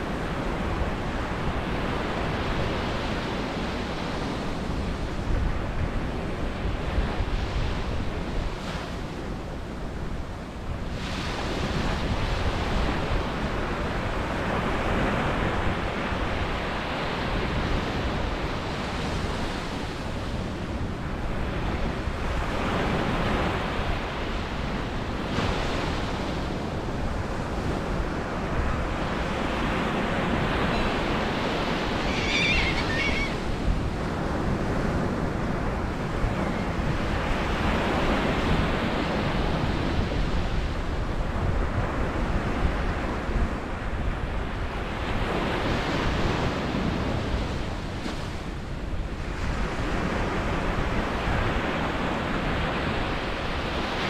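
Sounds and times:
ocean surf breaking on beach: 0.0 - 54.0
gull call: 32.0 - 33.4.

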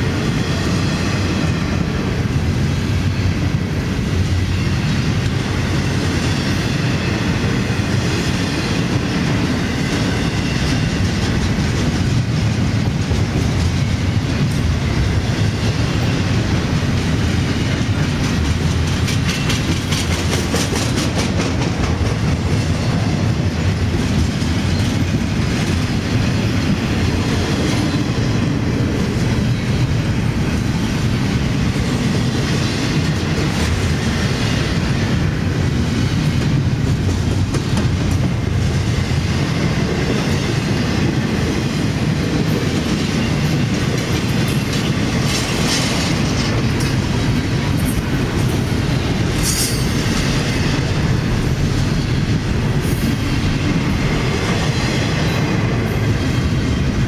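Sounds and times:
freight train rumble: 0.0 - 57.0
wheels clicking over rail joints: 15.6 - 34.2.

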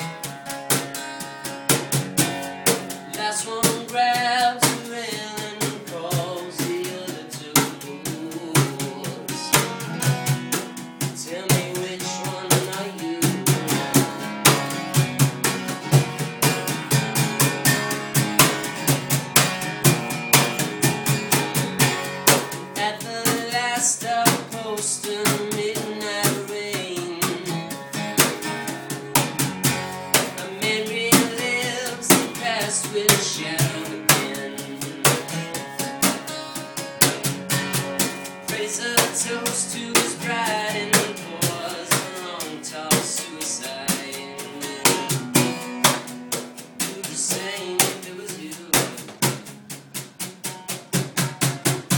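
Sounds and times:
acoustic guitar: 0.0 - 51.9
drum kit with rim clicks: 0.0 - 51.9
person singing: 2.7 - 14.8, 22.3 - 29.2, 29.9 - 36.8, 38.4 - 45.6, 46.8 - 49.1.

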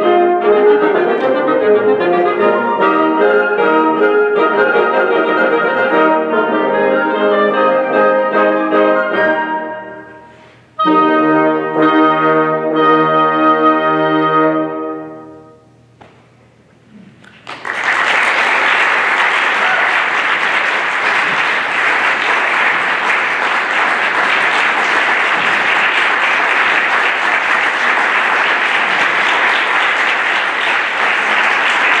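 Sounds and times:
audience applauding: 17.2 - 32.0.

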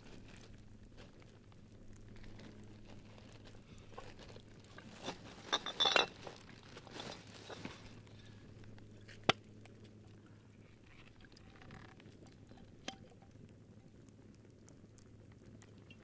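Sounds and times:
campfire crackling: 0.0 - 16.0
glass bottle clinking: 5.5 - 6.2.

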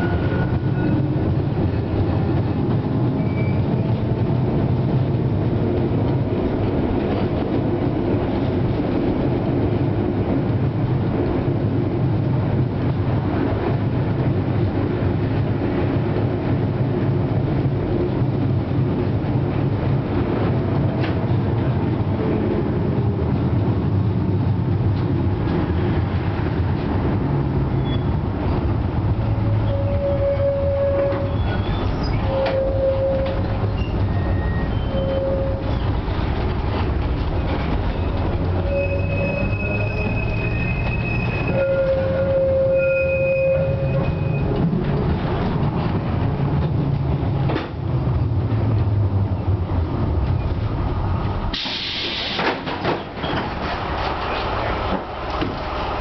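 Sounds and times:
tram rumble and hum: 0.0 - 56.0
high wheel squeal: 3.2 - 3.8, 29.6 - 36.0, 37.9 - 44.6
loud hiss: 51.5 - 52.6.

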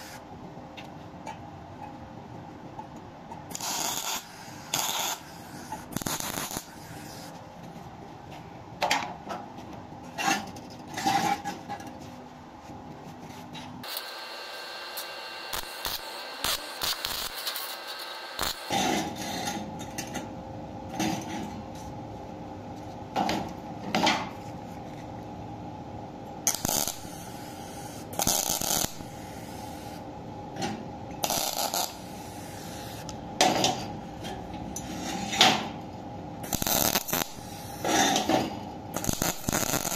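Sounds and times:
steady hum: 0.0 - 39.9
tack welding bursts: 3.5 - 7.2, 13.8 - 18.8, 26.5 - 27.5, 28.2 - 29.9, 31.2 - 33.0, 36.4 - 38.2, 39.0 - 39.9.

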